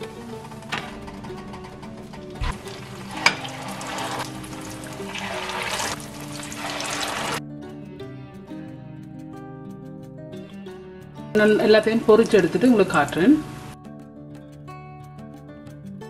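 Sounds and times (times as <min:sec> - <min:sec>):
background music: 0:00.0 - 0:16.0
oil sizzling and bubbling: 0:02.0 - 0:07.4, 0:12.1 - 0:13.8.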